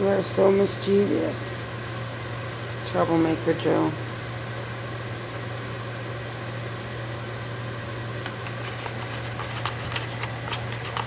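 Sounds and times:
low mechanical hum with hiss: 0.0 - 11.0.

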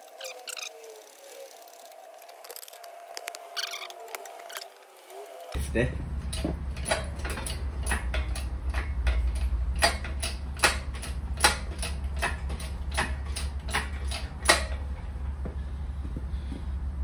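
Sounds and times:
low steady hum: 5.3 - 17.0
engine crane clicking: 5.6 - 16.6.

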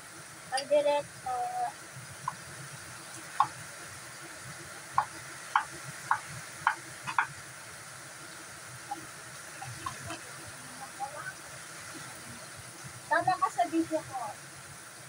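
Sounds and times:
knife knocking on wooden board: 5.0 - 7.3.

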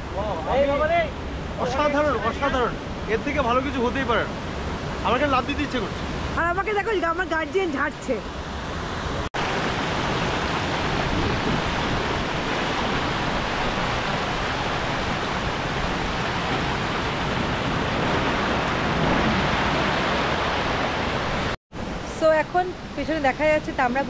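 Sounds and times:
river water rushing over rocks: 8.4 - 22.0.

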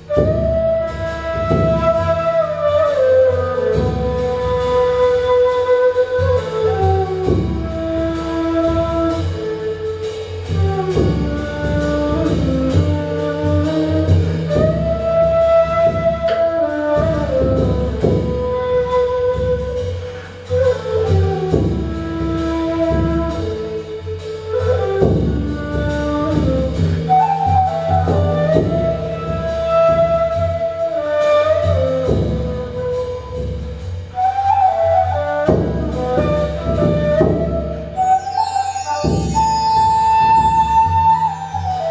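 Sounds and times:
cane flute sliding melody: 0.0 - 41.9
drum beat: 15.8 - 18.4.

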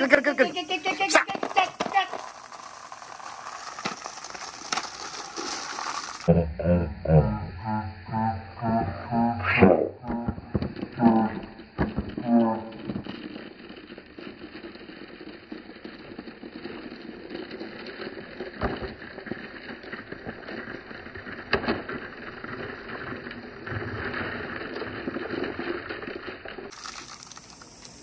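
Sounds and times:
glass marbles rattling: 1.3 - 6.3, 25.0 - 27.7
sharp marble clicks: 10.3 - 28.0.

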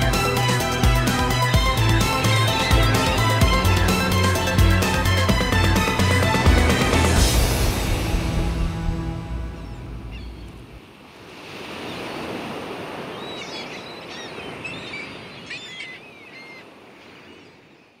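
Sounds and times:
routine music: 0.0 - 10.8.

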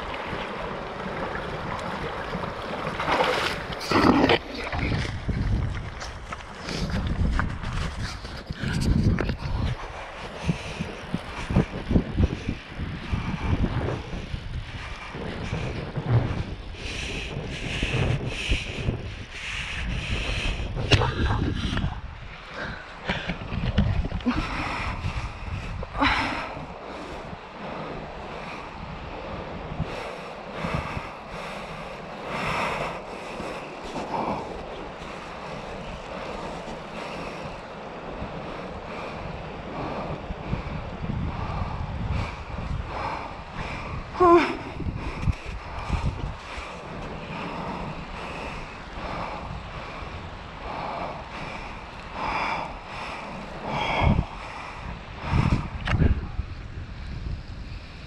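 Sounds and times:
creek water running over gravel: 0.0 - 9.9
wind buffeting microphone: 0.0 - 58.0.

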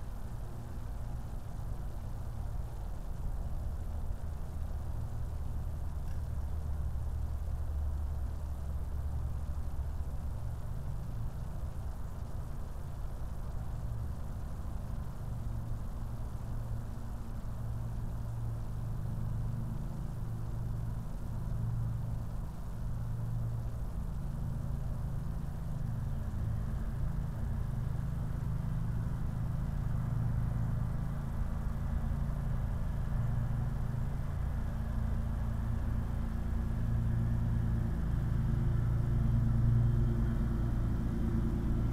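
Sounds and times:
low mechanical rumble: 0.0 - 41.9.

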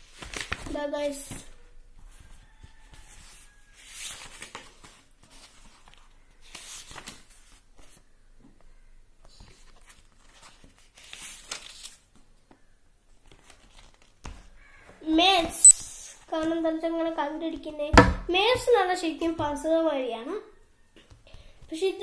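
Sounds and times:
book pages rustling: 0.0 - 8.1, 9.3 - 12.6, 13.2 - 14.5.

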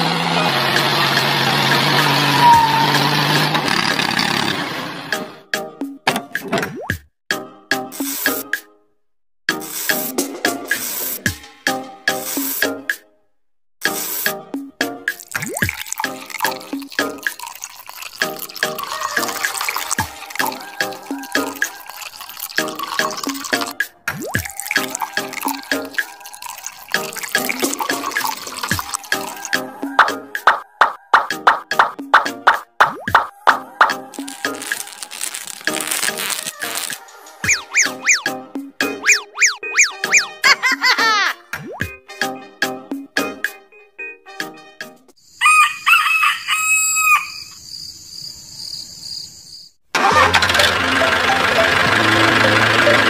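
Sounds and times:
tractor engine: 0.0 - 5.4, 34.0 - 38.2, 49.9 - 53.0
bouncy children's music: 5.1 - 8.9, 9.5 - 13.2, 13.8 - 17.5, 18.1 - 45.2, 50.0 - 53.0
water trickling and dripping: 15.2 - 29.5
rooster crowing: 18.8 - 21.9, 28.9 - 31.4, 33.3 - 35.2, 45.4 - 47.6.

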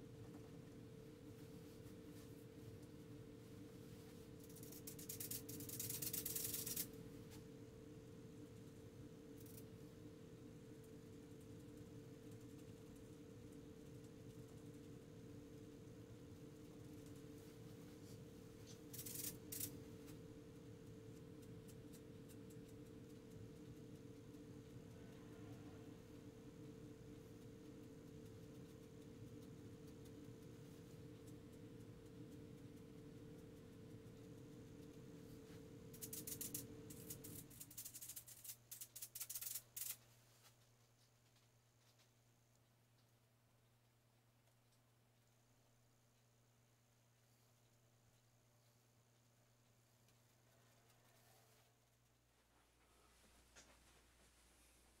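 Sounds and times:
steady low hum: 0.0 - 55.0
faint ticks: 18.6 - 45.4.

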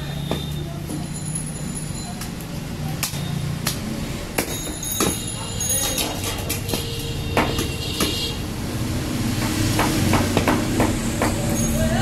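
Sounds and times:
knife chopping on wooden block: 6.0 - 8.2, 9.4 - 11.4.

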